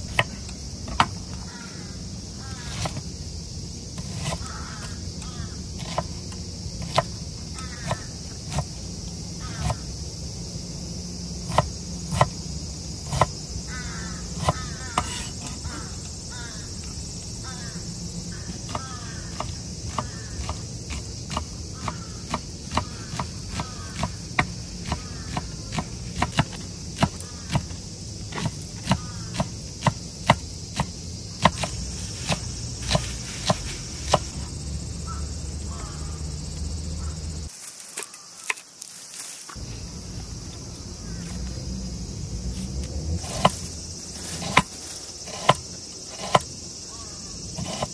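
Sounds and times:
insect chorus: 0.0 - 47.9
knife chopping on wooden board: 14.4 - 15.6, 18.7 - 27.7, 28.3 - 34.2, 44.4 - 44.7, 45.3 - 46.5.

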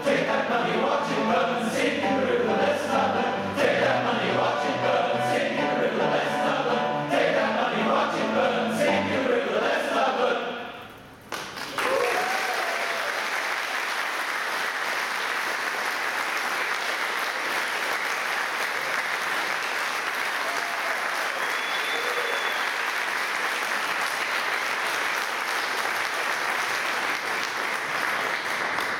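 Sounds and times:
audience applauding: 11.3 - 28.9.

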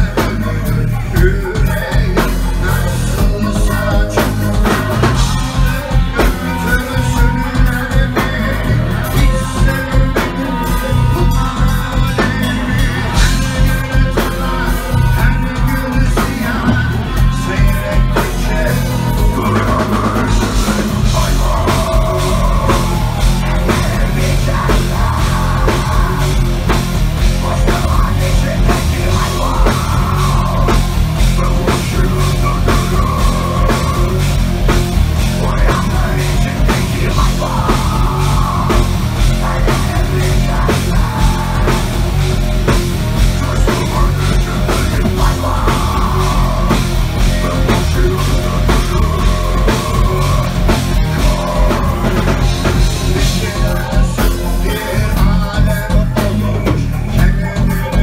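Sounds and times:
heavy metal band playing live: 0.0 - 58.0
pounding drum kit: 0.0 - 58.0.

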